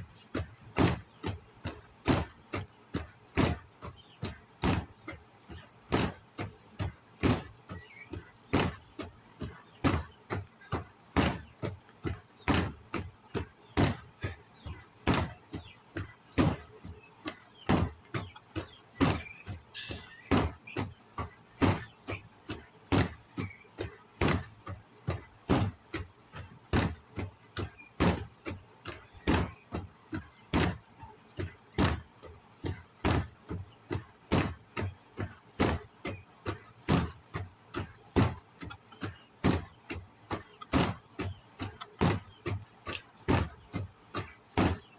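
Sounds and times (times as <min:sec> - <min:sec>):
stick beating a pan: 0:19.6 - 0:20.6.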